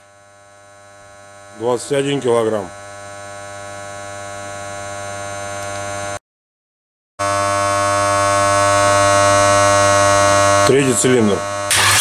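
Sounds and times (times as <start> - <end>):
electrical buzzing hum: 0.0 - 6.2, 7.2 - 12.0.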